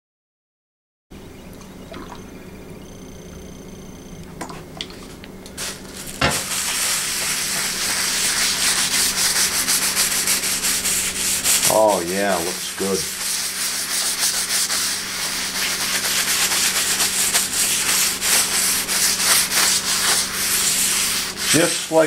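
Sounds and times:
cloth scrubbing wet wooden board: 4.9 - 22.0.

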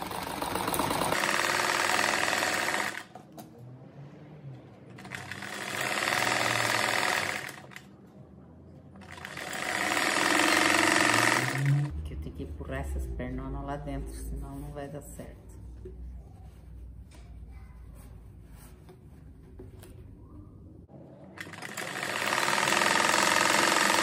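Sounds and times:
sewing machine stitching: 0.0 - 3.2, 4.9 - 7.9, 9.0 - 11.9, 21.3 - 24.0.

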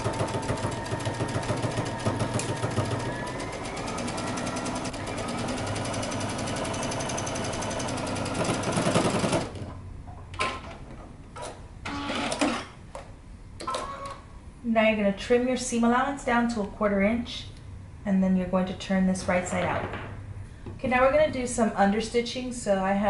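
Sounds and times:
sewing machine stitching: 0.0 - 9.7.

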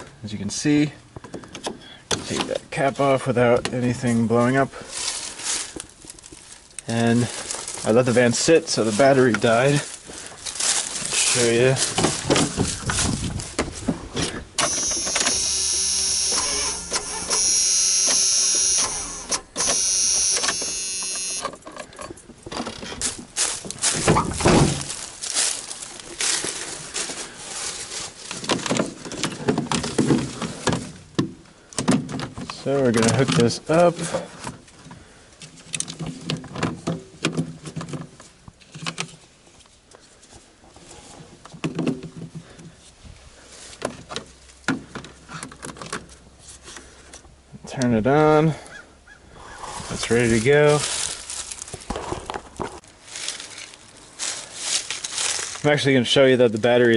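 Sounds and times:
battery clamps clicking: 14.6 - 21.5
starter solenoid chattering buzz: 14.6 - 21.5.

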